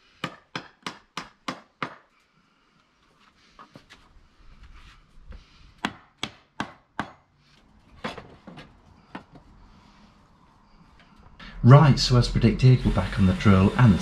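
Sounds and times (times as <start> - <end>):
hammer striking timber: 0.2 - 2.1, 5.8 - 7.3.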